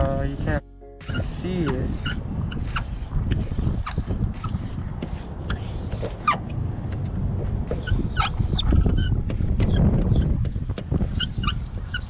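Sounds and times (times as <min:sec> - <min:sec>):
steady low rumble: 0:00.0 - 0:12.0
marker squeaking on glass: 0:01.0 - 0:06.4, 0:07.7 - 0:12.0.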